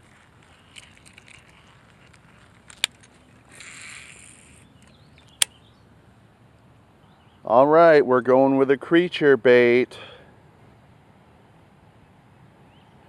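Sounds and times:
fishing reel clicking: 0.7s - 4.9s
fishing reel spool whirring: 0.7s - 4.9s.

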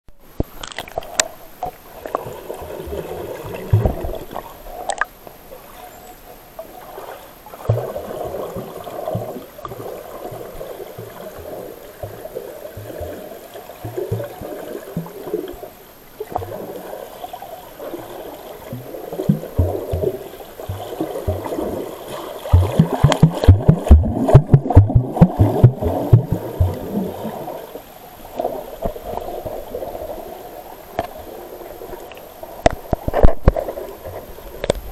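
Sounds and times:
water sloshing underwater: 0.2s - 34.9s
low underwater thumps: 22.5s - 27.2s.

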